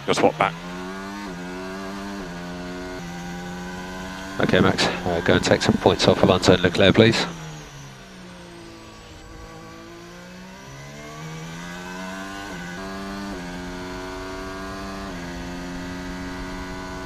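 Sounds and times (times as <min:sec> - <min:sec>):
race car engine running hard: 0:00.0 - 0:17.0.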